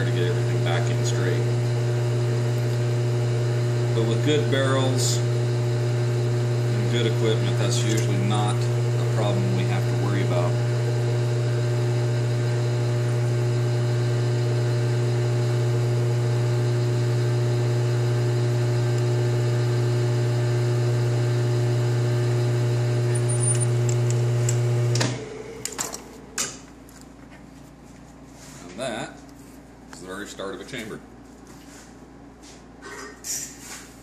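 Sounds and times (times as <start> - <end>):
lathe motor and gear hum: 0.0 - 26.4.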